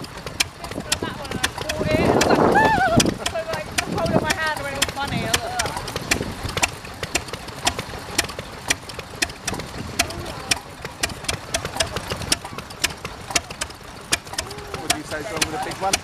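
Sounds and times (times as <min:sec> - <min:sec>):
stationary engine running slowly: 0:00.0 - 0:16.0.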